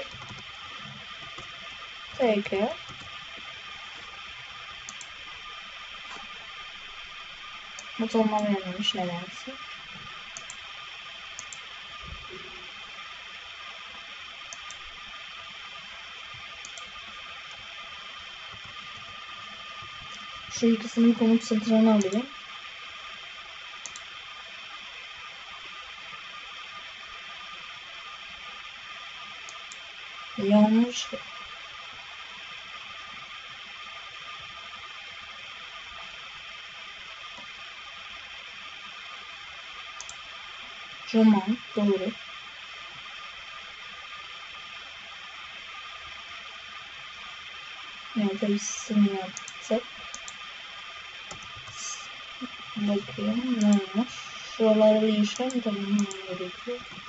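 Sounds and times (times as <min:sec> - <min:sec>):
computer mouse clicks: 0:00.0 - 0:00.5, 0:01.1 - 0:04.2, 0:04.8 - 0:05.2, 0:10.3 - 0:10.6, 0:11.4 - 0:11.7, 0:14.5 - 0:14.8, 0:16.6 - 0:17.0, 0:22.0 - 0:22.2, 0:23.8 - 0:24.1, 0:40.0 - 0:40.2, 0:49.3 - 0:50.4, 0:51.3 - 0:51.8, 0:55.3 - 0:57.0
faint steady tone: 0:00.0 - 0:57.0
microphone hiss: 0:00.0 - 0:57.0
faint click: 0:14.5 - 0:14.8.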